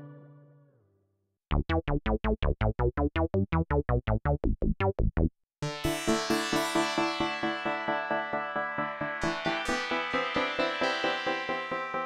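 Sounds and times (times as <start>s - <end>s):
plucky synthesizer bass notes: 1.5s - 12.0s
synthesizer held chord: 5.6s - 12.0s.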